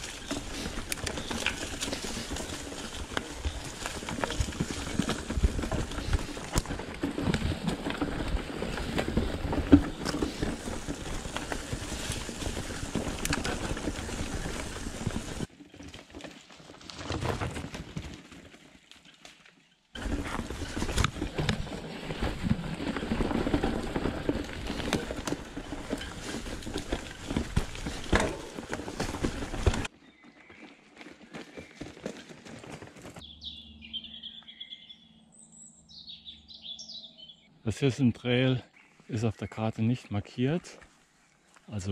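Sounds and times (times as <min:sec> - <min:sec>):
bike rattling: 0:00.0 - 0:29.9
bike tyres rolling on trail: 0:00.0 - 0:35.0, 0:40.4 - 0:41.9.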